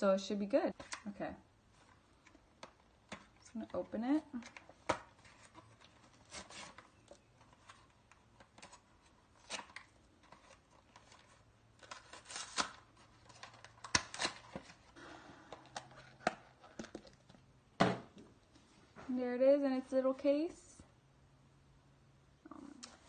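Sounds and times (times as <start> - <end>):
packaging being torn open: 11.8 - 14.8
plastic card case handled: 15.5 - 18.2.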